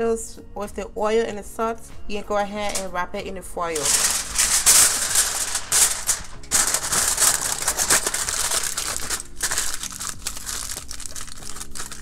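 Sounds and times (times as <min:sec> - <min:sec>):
aluminium foil crinkling: 0:03.8 - 0:12.0.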